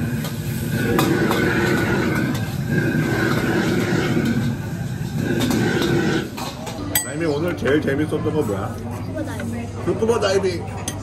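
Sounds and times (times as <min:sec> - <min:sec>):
gas burner roaring: 0:00.0 - 0:08.7.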